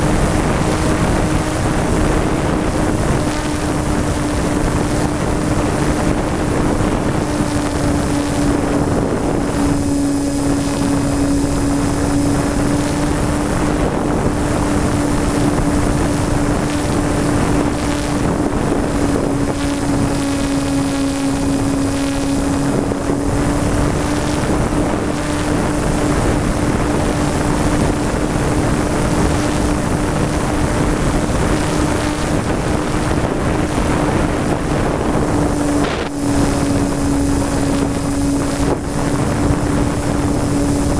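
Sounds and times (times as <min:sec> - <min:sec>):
model plane motor hum: 0:00.0 - 0:40.9
wind rush on microphone: 0:00.0 - 0:40.9.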